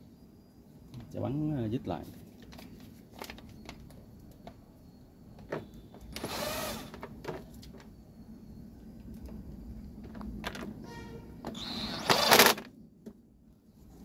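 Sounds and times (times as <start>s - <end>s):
electric screwdriver running: 11.6s - 12.6s.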